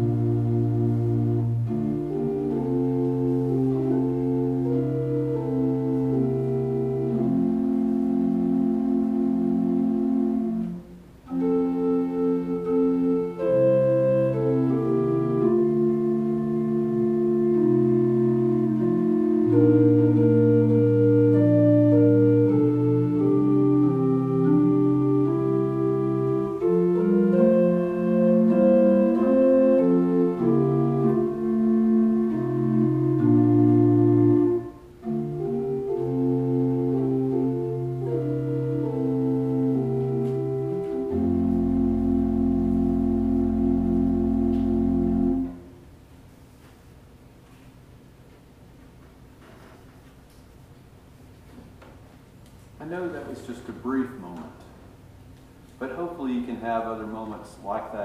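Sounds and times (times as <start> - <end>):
organ playing held chords: 0.0 - 46.0.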